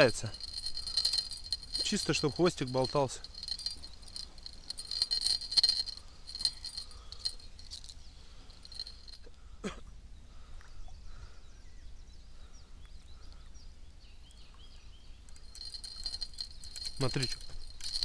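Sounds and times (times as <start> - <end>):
bite alarm bell jingling: 0.0 - 9.3, 15.3 - 18.0.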